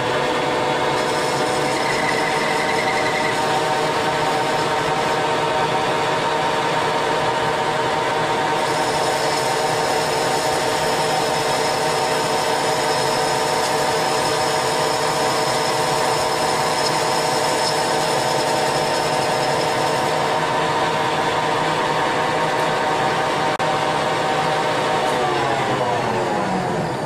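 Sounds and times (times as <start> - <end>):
metal lathe geared hum: 0.0 - 27.0
thin high whine: 0.9 - 6.1.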